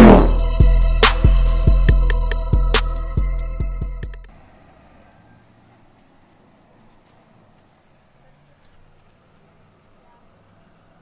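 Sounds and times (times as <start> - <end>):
falling synth sweep: 0.0 - 1.8
synth chords: 0.0 - 4.3.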